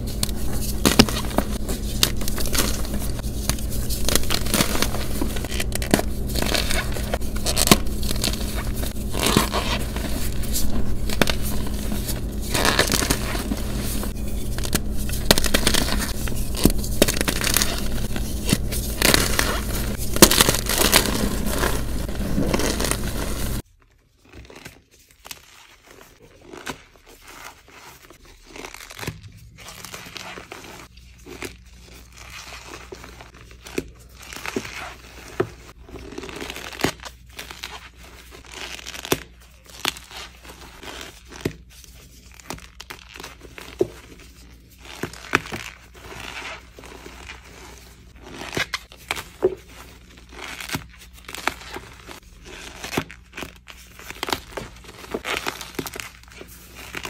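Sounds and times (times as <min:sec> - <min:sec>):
chalk crunching by hand: 0:00.0 - 0:23.6
steady low hum: 0:00.0 - 0:23.6.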